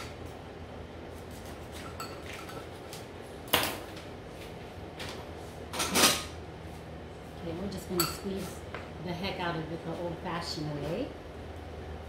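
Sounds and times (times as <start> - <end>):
kitchen clatter: 5.7 - 6.4.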